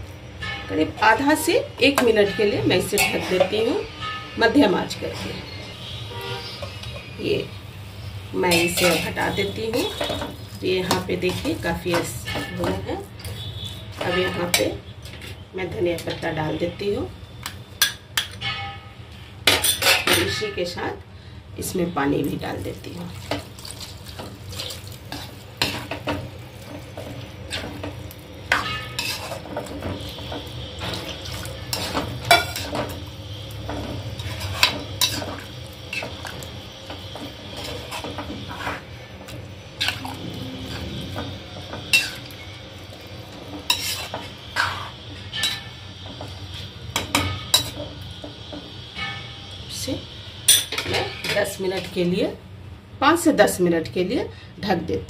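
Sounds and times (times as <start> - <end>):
spoon scraping metal pan: 1.9 - 3.9, 8.4 - 15.4, 24.6 - 33.0, 33.7 - 42.6, 43.4 - 47.9.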